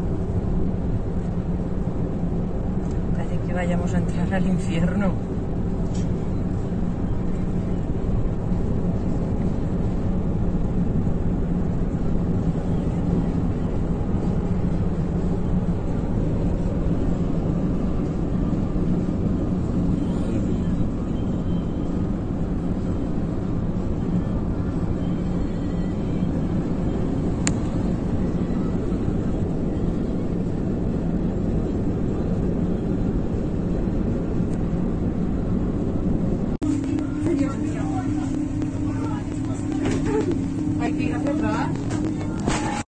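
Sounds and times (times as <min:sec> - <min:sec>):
car engine hum: 0:00.0 - 0:42.9
road noise: 0:00.0 - 0:42.9.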